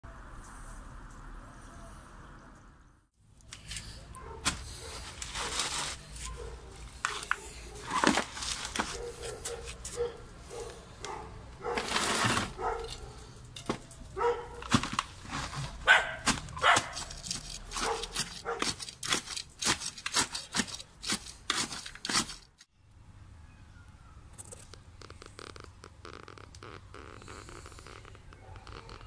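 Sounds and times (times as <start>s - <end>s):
rod stabbing into gritty soil: 14.6s - 22.7s.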